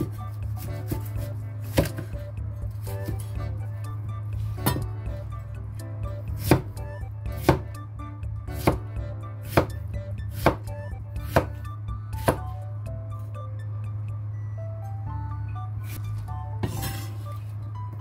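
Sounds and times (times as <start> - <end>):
background music: 0.0 - 18.0
cleaver chopping on wooden board: 1.7 - 2.1, 6.4 - 7.8, 8.6 - 8.8, 9.5 - 11.6, 12.2 - 12.5.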